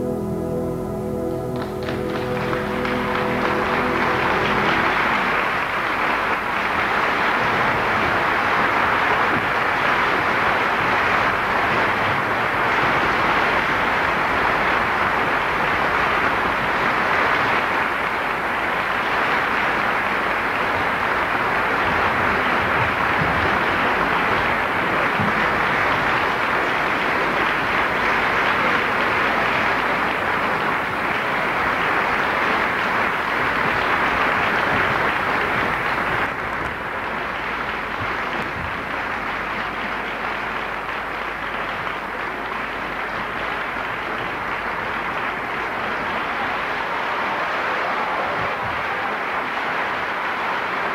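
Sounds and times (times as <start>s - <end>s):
audience applauding: 0.0s - 50.9s.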